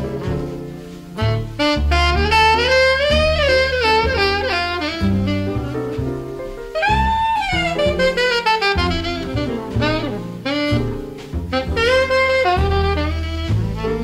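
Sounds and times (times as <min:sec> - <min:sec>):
alto saxophone melody: 0:00.0 - 0:14.0
double bass: 0:00.0 - 0:14.0.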